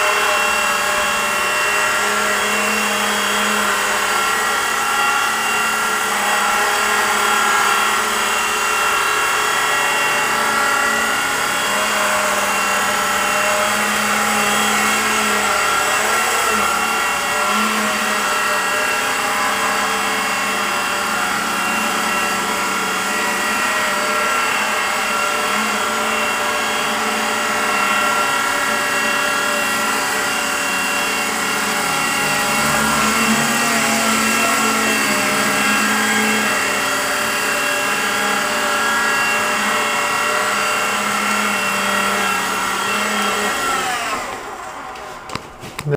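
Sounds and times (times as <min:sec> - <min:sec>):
electric motors whining: 0:00.0 - 0:45.9
rotor blades whirring: 0:00.0 - 0:45.9.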